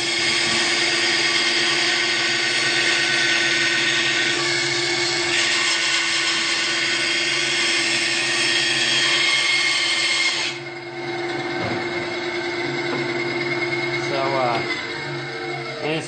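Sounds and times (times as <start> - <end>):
band saw cutting wood: 0.0 - 16.0
saw motor humming: 0.0 - 16.0.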